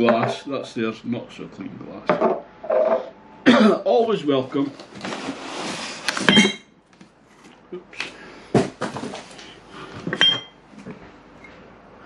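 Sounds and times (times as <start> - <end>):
cardboard and packaging rustling: 4.4 - 6.3, 8.5 - 9.6
glass clinking: 6.3 - 6.7, 10.2 - 10.6.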